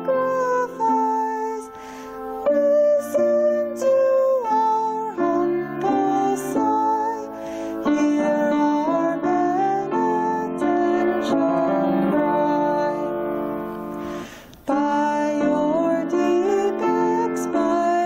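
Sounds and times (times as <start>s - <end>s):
grand piano: 0.0s - 18.0s
person singing: 0.0s - 18.0s
singer breathing: 1.7s - 2.4s, 7.3s - 7.9s, 13.9s - 14.6s.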